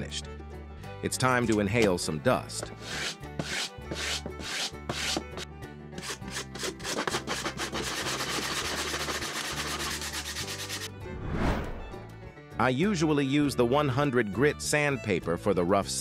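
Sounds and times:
sanding block on wood: 0:02.6 - 0:05.4, 0:06.0 - 0:10.9.

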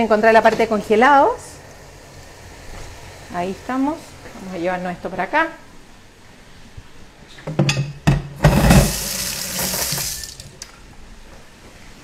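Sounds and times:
kitchen tap running: 0:08.4 - 0:10.7.

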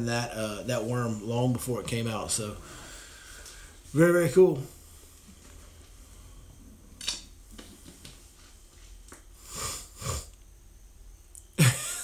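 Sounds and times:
person sniffing: 0:09.4 - 0:10.4.

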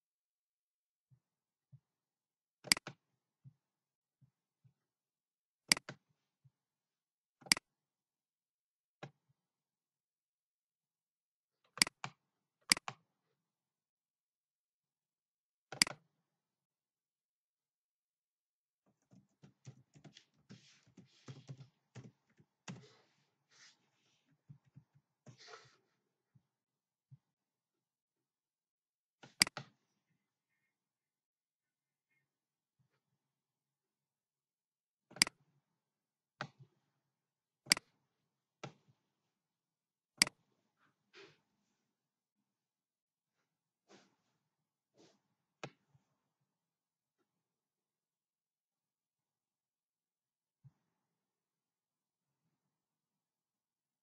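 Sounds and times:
computer mouse button clicking: 0:02.6 - 0:03.0, 0:05.7 - 0:06.0, 0:12.7 - 0:13.0, 0:15.7 - 0:16.0, 0:29.2 - 0:29.7
faint typing on a keyboard: 0:18.8 - 0:25.8.

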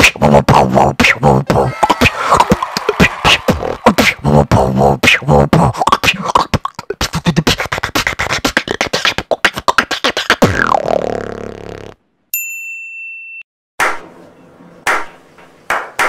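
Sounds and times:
person beatboxing: 0:00.0 - 0:11.9.

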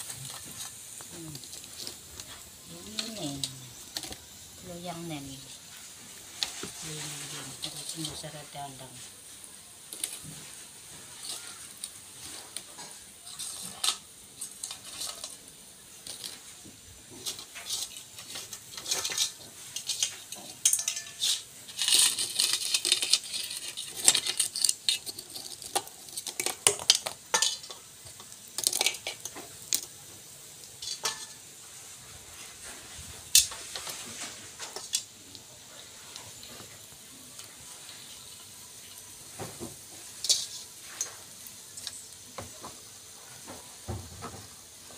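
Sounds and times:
crisp cookies clattering in steel pot: 0:00.0 - 0:09.0, 0:09.8 - 0:31.6, 0:33.2 - 0:42.8
hot oil sizzling in a wok: 0:00.0 - 0:44.9
metal utensils clinking: 0:11.2 - 0:16.5, 0:17.2 - 0:30.0, 0:30.6 - 0:31.6, 0:33.3 - 0:39.1, 0:40.0 - 0:42.1.

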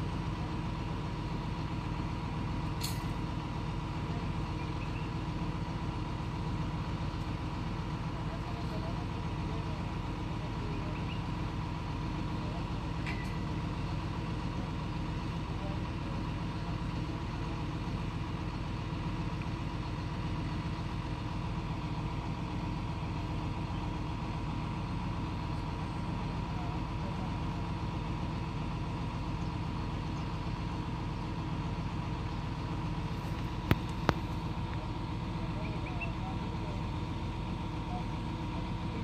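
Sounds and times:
crane truck engine idling: 0:00.0 - 0:39.0.

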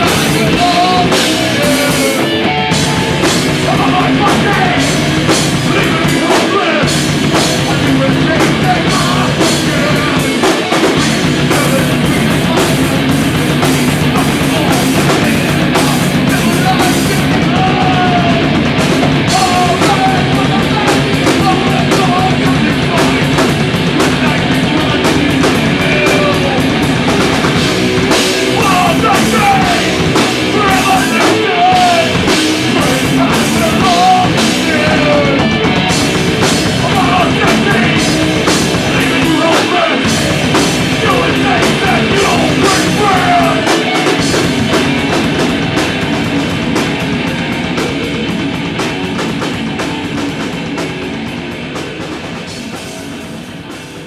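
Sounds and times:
distorted electric guitars and bass: 0:00.0 - 0:54.0
pounding drum kit: 0:00.0 - 0:54.0
singer shouting into microphone: 0:03.6 - 0:05.0, 0:14.1 - 0:18.6, 0:19.2 - 0:23.3, 0:28.3 - 0:35.8, 0:36.8 - 0:38.3, 0:38.9 - 0:40.2, 0:40.9 - 0:44.2.

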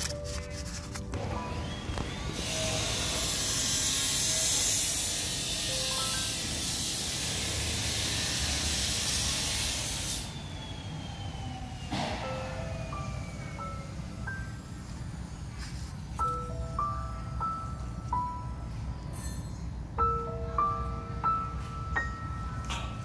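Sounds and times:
faint background music: 0:00.0 - 0:07.2
loud steady hiss: 0:02.3 - 0:10.9.

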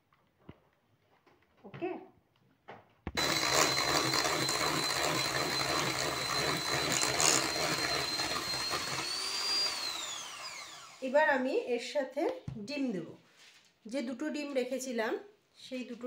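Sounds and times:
electric hand mixer whining: 0:03.2 - 0:11.4.

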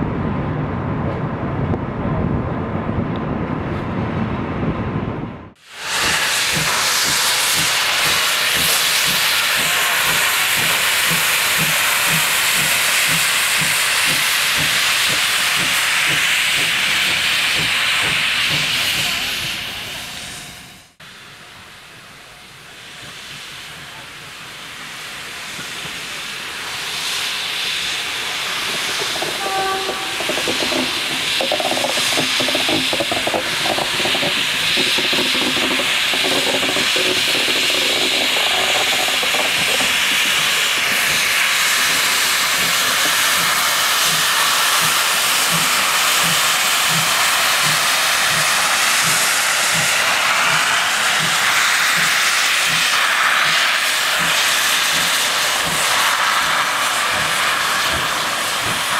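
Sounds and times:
steam locomotive hissing: 0:05.6 - 0:58.9
low beat: 0:28.7 - 0:44.2.

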